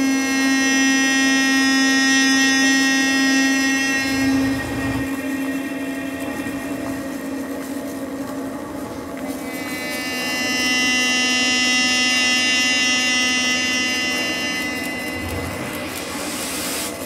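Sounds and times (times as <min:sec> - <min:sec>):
buzzy high overtones: 0:00.2 - 0:17.0
low free-reed drone: 0:03.0 - 0:09.2, 0:13.8 - 0:17.0.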